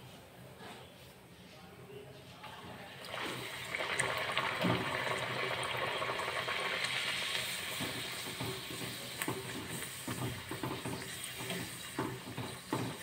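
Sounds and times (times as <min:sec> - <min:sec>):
food sizzling in hot oil: 0:03.1 - 0:13.0.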